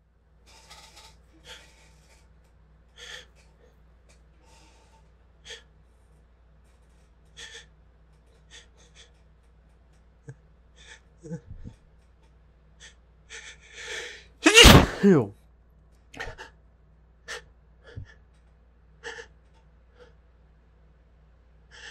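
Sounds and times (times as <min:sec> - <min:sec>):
person sneezing: 0:14.4 - 0:15.3.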